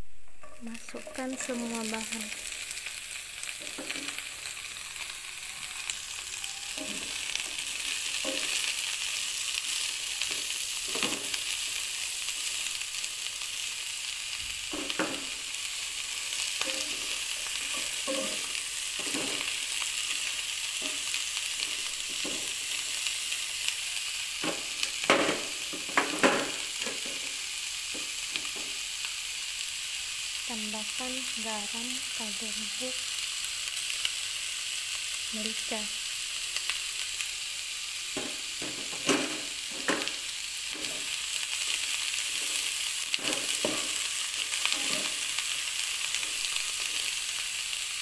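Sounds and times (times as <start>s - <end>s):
vegetables sizzling in oil: 0.0s - 48.0s
stirring scraping against pan: 0.4s - 1.8s, 16.4s - 22.8s, 42.2s - 45.4s.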